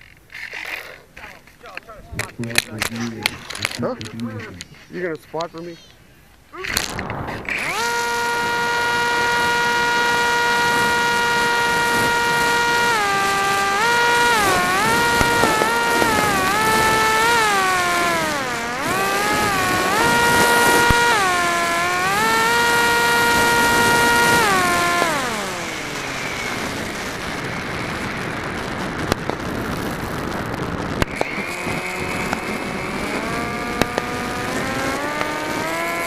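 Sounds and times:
faint firework cracks: 6.6 - 7.6, 28.1 - 31.4
model aircraft motor whining: 6.6 - 36.0
steady rushing noise: 6.7 - 36.0.

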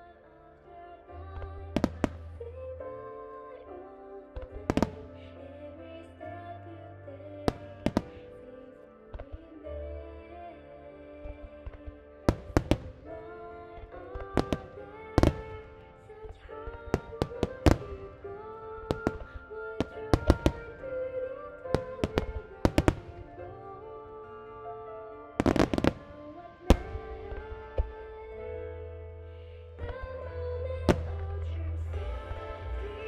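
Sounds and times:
music with long held notes: 0.0 - 33.0
fireworks bursting: 1.8 - 2.4, 4.4 - 5.2, 7.5 - 8.3, 11.2 - 24.6, 25.3 - 28.4, 30.8 - 31.4.

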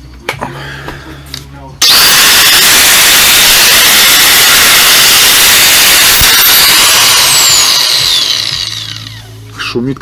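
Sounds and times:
angle grinder whirring: 1.8 - 9.4.

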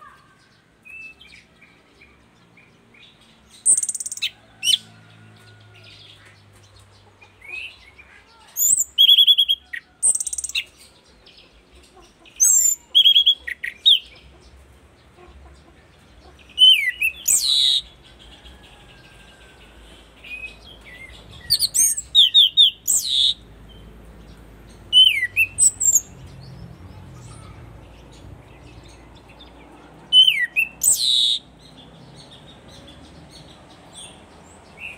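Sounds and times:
thrush singing whistles and trills: 24.9 - 26.1.

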